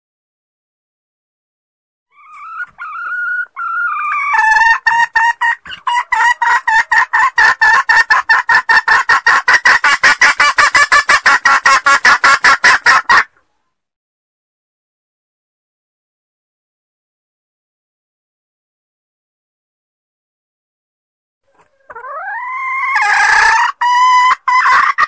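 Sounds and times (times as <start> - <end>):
hen clucking call: 2.1 - 13.4, 21.5 - 25.0.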